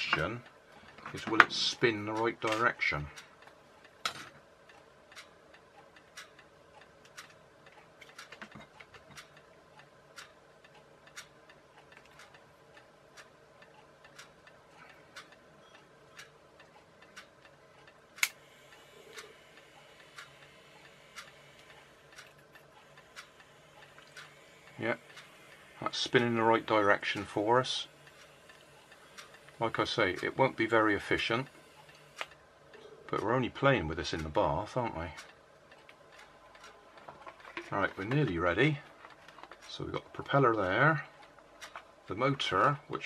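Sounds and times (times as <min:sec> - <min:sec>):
clock ticking: 0:00.0 - 0:43.0.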